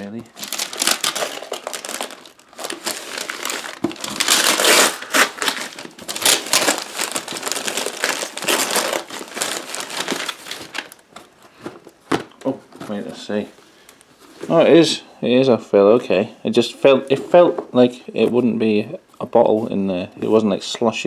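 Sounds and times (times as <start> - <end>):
paper tearing and crumpling: 0.4 - 11.0.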